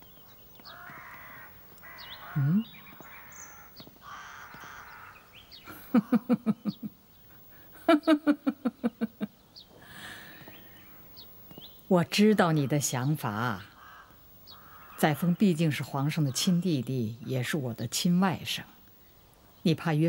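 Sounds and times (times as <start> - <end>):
woman laughing: 5.6 - 7.0, 7.7 - 9.4.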